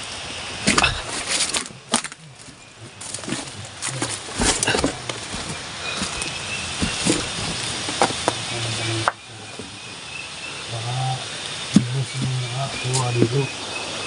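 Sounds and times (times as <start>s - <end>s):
leaves and branches rustling: 0.0s - 14.0s
twigs snapping: 0.6s - 8.4s.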